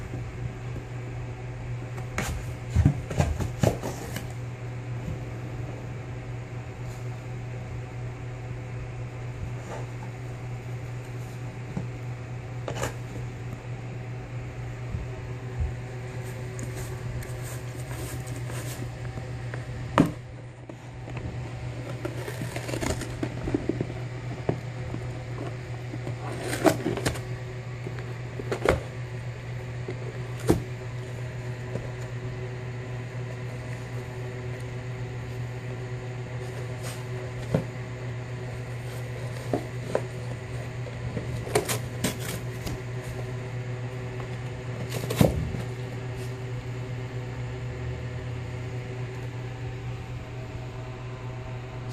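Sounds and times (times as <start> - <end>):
low hum: 0.0 - 51.9
dog tearing cardboard box: 21.9 - 23.9, 26.2 - 27.2.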